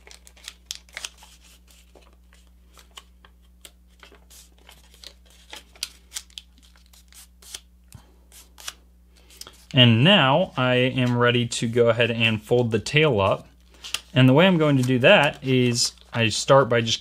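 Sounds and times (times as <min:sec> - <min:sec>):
paper crinkling: 0:00.0 - 0:07.6, 0:13.7 - 0:17.0.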